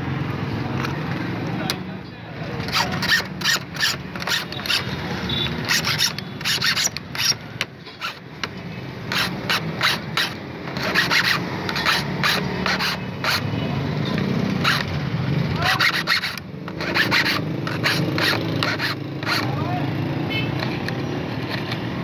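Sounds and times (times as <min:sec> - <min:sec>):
file rasping on metal: 0:02.6 - 0:08.3, 0:09.0 - 0:19.8.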